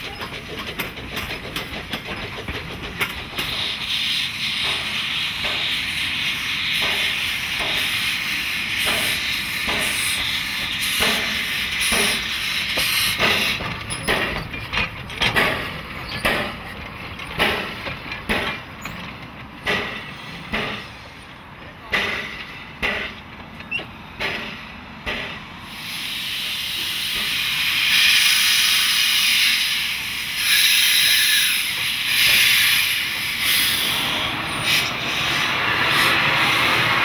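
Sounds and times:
steam locomotive hissing: 0.0 - 37.0
sharp metallic knocks: 11.0 - 20.9, 21.9 - 25.4.

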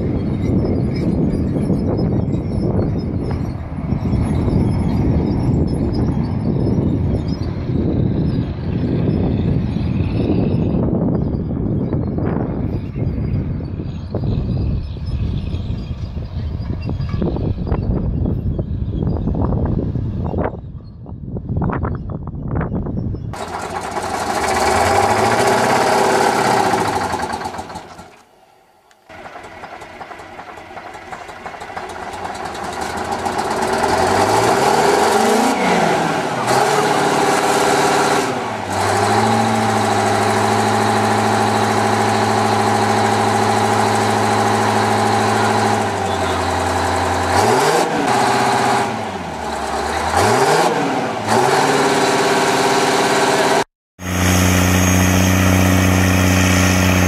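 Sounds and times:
diesel tractor engine revving: 0.0 - 17.8, 23.3 - 28.4, 29.0 - 57.0.

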